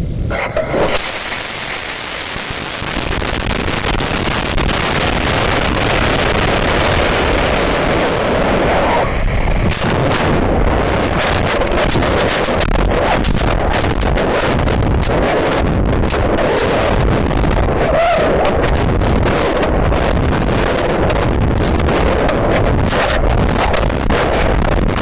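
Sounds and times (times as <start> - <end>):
rushing hiss of rocket burn: 0.3 - 14.5
rocket motor igniting: 0.3 - 17.7
sharp crackles: 0.3 - 25.0.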